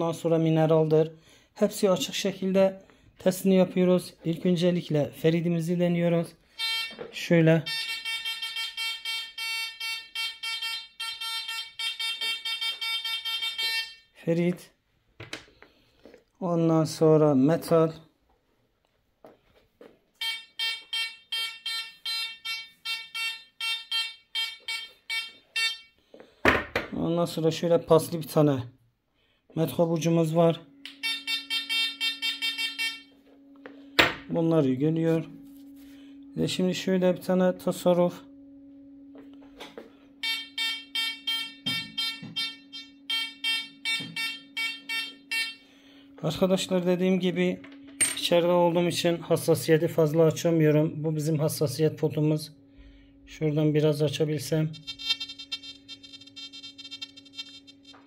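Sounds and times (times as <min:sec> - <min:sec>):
metal detector beeping: 0:06.5 - 0:14.2, 0:20.2 - 0:26.0, 0:30.2 - 0:38.2, 0:39.1 - 0:58.0
faint low hum: 0:26.8 - 0:58.0.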